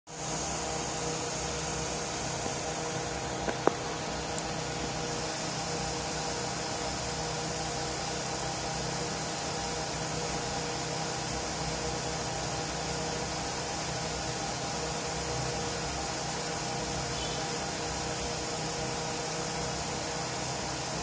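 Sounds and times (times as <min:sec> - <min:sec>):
machine hum and hiss: 0:00.1 - 0:21.0.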